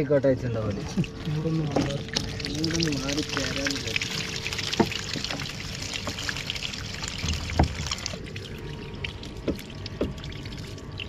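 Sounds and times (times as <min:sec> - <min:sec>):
water pouring and splashing: 0:00.6 - 0:11.0.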